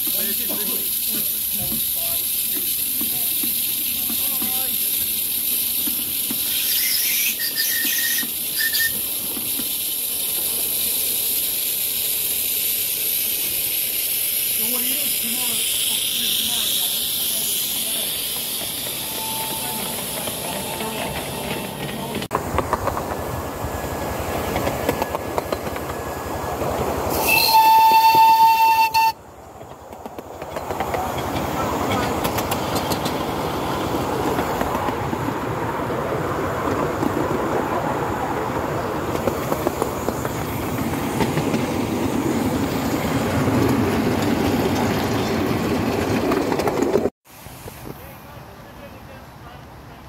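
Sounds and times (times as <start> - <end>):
steam hissing from safety valves: 0.0 - 22.6, 23.3 - 35.3, 38.6 - 48.7
steam whistle blast: 6.6 - 9.0, 19.0 - 20.8, 27.1 - 29.2.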